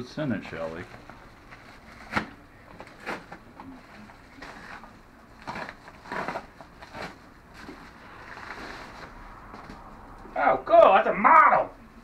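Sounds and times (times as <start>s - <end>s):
paper envelope tearing: 4.3s - 9.0s.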